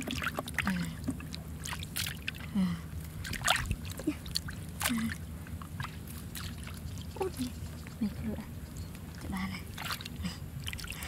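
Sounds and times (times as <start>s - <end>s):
hands splashing in muddy water: 3.2s - 5.2s, 5.8s - 7.5s.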